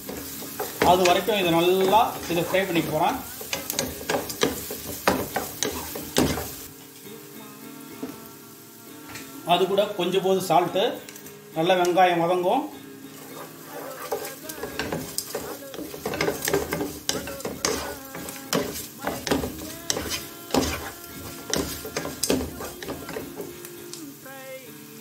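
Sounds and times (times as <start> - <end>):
spatula scraping a pan: 0.0 - 6.7, 13.1 - 23.6
sizzle of frying in oil: 0.0 - 25.0
spatula knocking against pan: 14.1 - 23.5.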